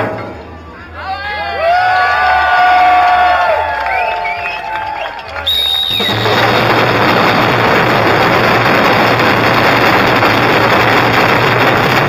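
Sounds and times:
drum ensemble roll: 5.4 - 12.0.

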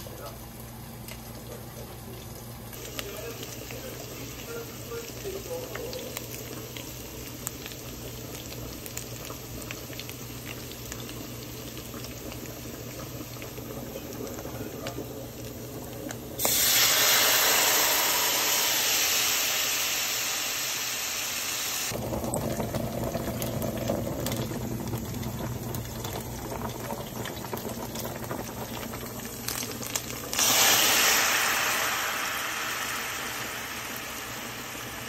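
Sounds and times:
garlic sizzling in oil: 2.7 - 22.1, 24.2 - 35.0
loud hiss of steam: 16.4 - 21.9, 30.4 - 35.0.

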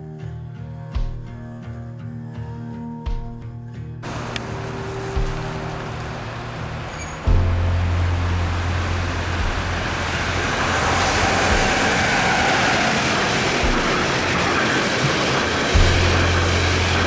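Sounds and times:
freight train rumble: 4.0 - 17.0
wheels rushing on rails: 4.0 - 17.0.

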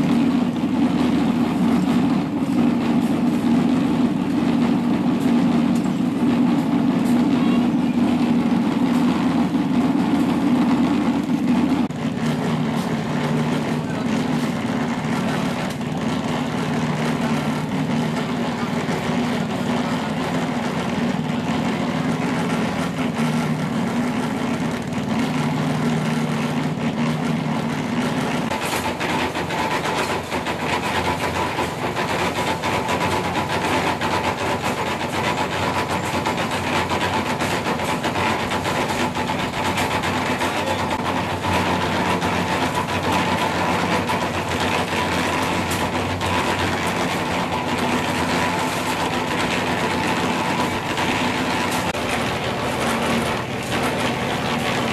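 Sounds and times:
steady higher hum: 0.0 - 33.4
concrete mixer engine running: 0.0 - 54.9.

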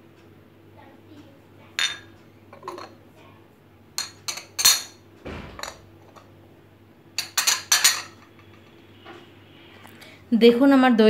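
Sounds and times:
ceramic plates clinking on glass bowls: 1.8 - 3.0, 4.0 - 5.0, 7.2 - 8.8.

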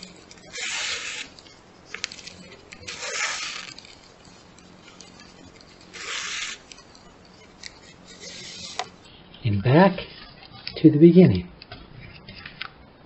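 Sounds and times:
shoelace rasping through holes: 0.0 - 9.0.

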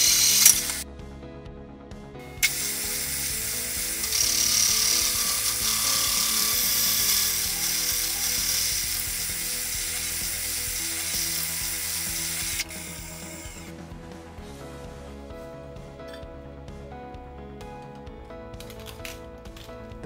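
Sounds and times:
hole saw cutting metal and wood: 0.0 - 0.8, 2.4 - 13.7.

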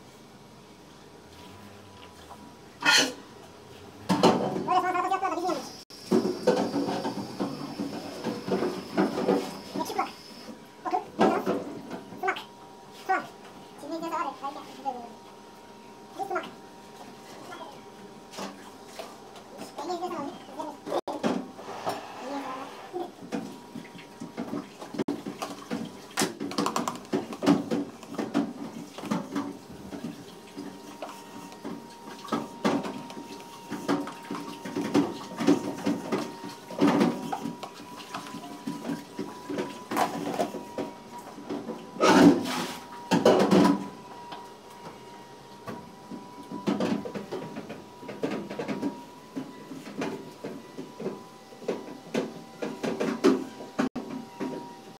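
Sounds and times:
kitchen knocks and clatter: 4.1 - 4.8, 23.3 - 30.2, 43.1 - 43.8.

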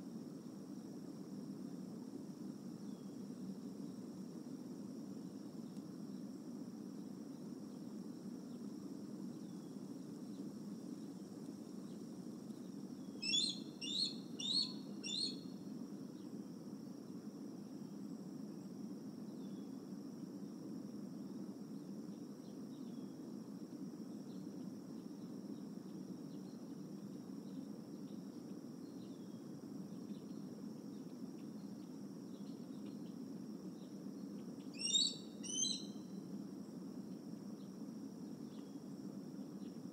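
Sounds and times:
eagle piping calls: 13.2 - 15.4, 34.8 - 35.9.

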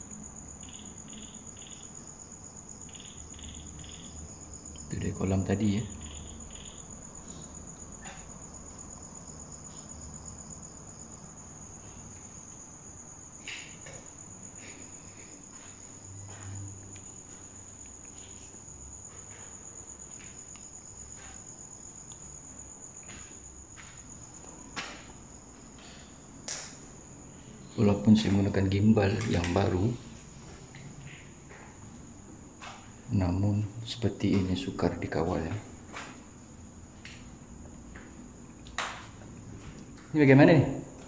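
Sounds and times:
crickets trilling: 0.0 - 41.0.

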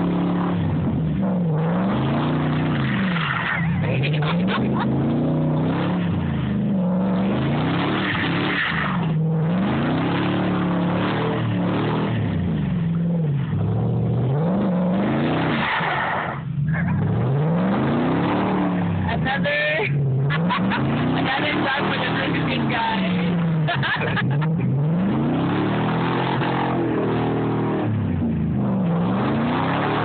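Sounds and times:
truck engine revving: 0.0 - 30.0.

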